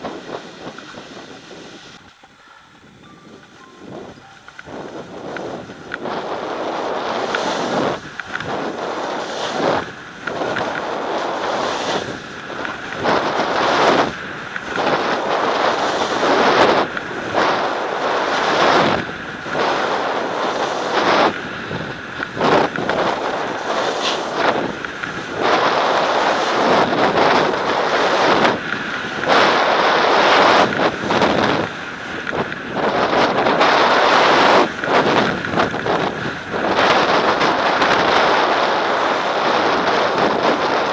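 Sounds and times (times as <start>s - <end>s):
wind rushing over microphone: 0.0s - 40.9s
edges scraping over hard snow: 4.9s - 21.4s, 22.3s - 28.6s.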